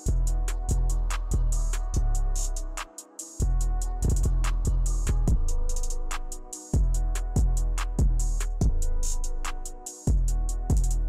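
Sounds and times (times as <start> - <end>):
quick hi-hats: 0.0 - 11.0
deep booming kick drum: 3.4 - 5.9, 6.8 - 9.1, 10.1 - 11.0.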